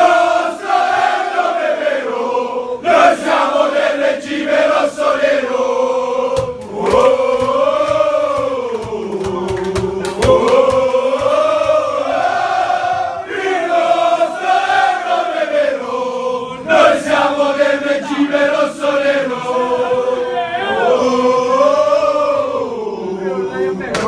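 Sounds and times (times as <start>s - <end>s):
men singing chant in unison: 0.0s - 23.8s
rhythmic thumps or claps: 6.3s - 13.0s.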